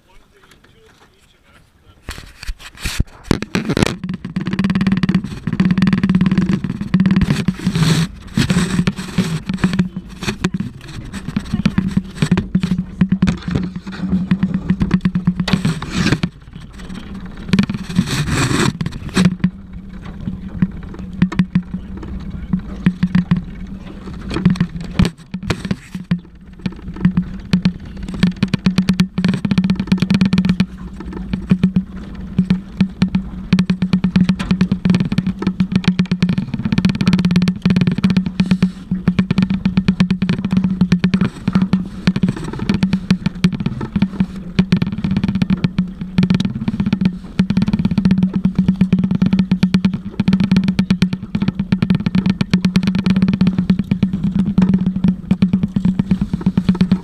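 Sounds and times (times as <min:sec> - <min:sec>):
boat motor humming: 0:00.0 - 0:57.0
knocks and rubbing on microphone: 0:00.0 - 0:57.0.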